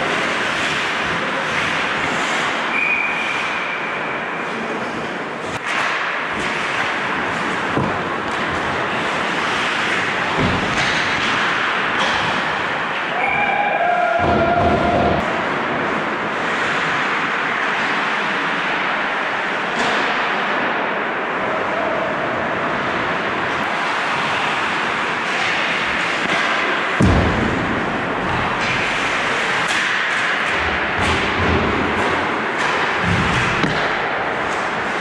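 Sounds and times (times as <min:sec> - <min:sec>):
skate blades scraping ice: 0:00.0 - 0:13.1
hockey sticks and puck clacking: 0:00.0 - 0:21.0, 0:22.7 - 0:35.0
heavy thump: 0:27.0 - 0:28.9.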